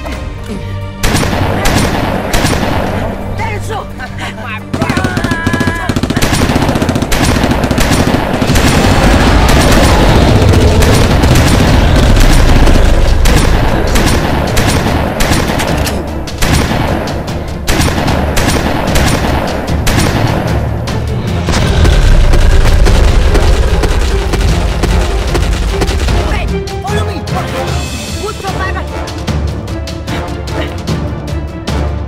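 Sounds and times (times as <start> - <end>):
action film music: 0.0 - 32.0
gunfire volleys: 1.0 - 3.2, 4.8 - 20.8
heavy low rumble: 6.1 - 18.4, 19.4 - 26.7.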